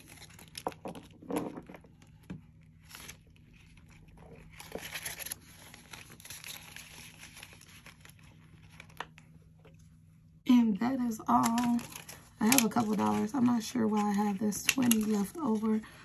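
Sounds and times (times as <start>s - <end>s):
plastic pouch crinkling: 0.0s - 1.3s, 1.9s - 9.4s, 11.3s - 15.8s
paper bills rustling: 2.8s - 9.2s, 11.3s - 15.8s.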